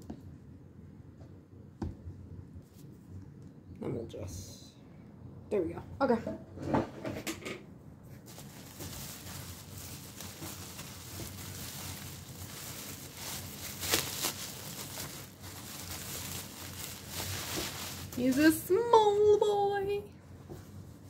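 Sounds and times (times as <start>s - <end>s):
bubble wrap crinkling: 8.1s - 20.0s.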